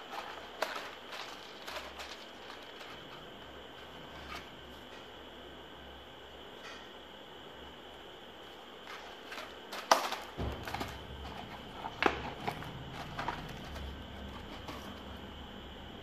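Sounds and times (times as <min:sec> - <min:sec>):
plastic crinkling: 0:00.0 - 0:04.5, 0:08.9 - 0:15.3.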